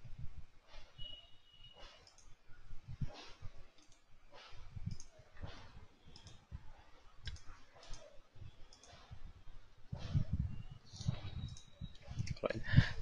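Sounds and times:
computer clicking and knocks: 7.2s - 9.2s.

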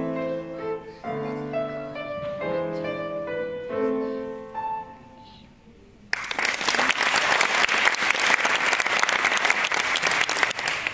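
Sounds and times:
grand piano playing: 0.0s - 5.4s
audience applauding: 6.1s - 10.9s.

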